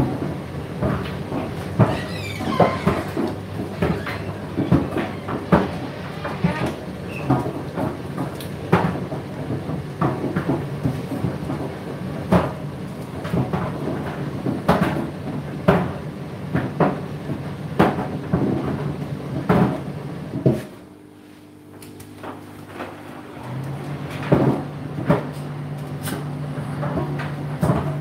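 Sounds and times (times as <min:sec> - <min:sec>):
motor hum: 0:20.8 - 0:28.0.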